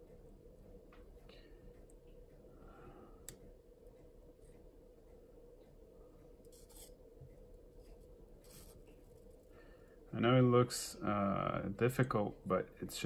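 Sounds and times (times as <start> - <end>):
faint steady hum: 0.0 - 13.0
soldering iron scratching circuit board: 6.4 - 7.0, 7.7 - 9.4.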